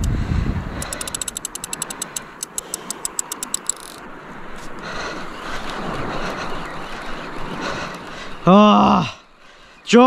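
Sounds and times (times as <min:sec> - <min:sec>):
wind on microphone: 0:00.0 - 0:01.9
sea wash: 0:00.0 - 0:10.0
fishing reel drag clicking: 0:00.8 - 0:04.1.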